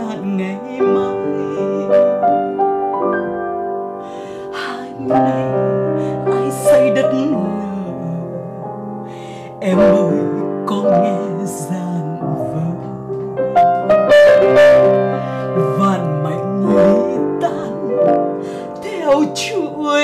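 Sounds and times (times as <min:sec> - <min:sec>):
woman singing: 0:00.0 - 0:02.4, 0:04.3 - 0:13.4, 0:15.4 - 0:20.0
upright piano chords: 0:00.0 - 0:20.0.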